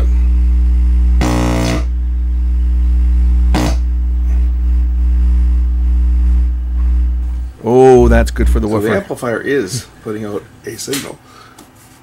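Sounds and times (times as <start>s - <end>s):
low test tone hum: 0.0s - 9.1s.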